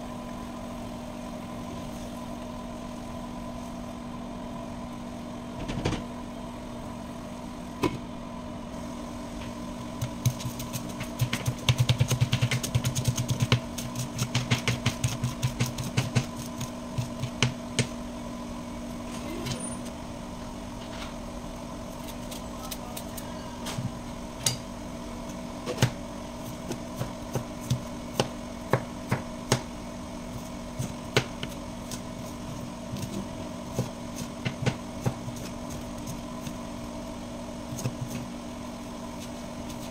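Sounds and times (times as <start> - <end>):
extractor fan motor hum: 0.0 - 39.9
knife chopping on plastic board: 10.0 - 18.0, 26.7 - 29.7, 30.8 - 32.0, 33.7 - 35.8.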